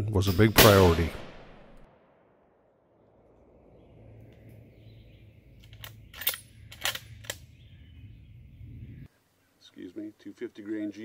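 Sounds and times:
rifle bolt metallic clicks: 5.6s - 7.5s.

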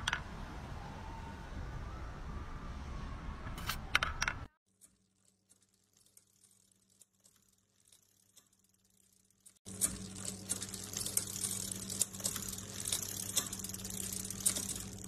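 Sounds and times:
steel ball clicking on wire track: 3.7s - 15.0s.

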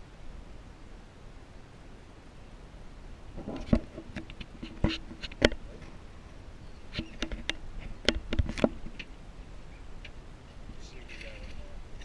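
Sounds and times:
sharp knocks and taps: 7.0s - 9.1s.

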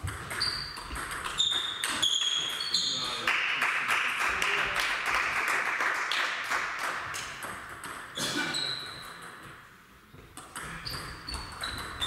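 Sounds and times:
table tennis ball pinging: 0.0s - 2.7s, 7.3s - 8.1s, 10.2s - 12.0s.

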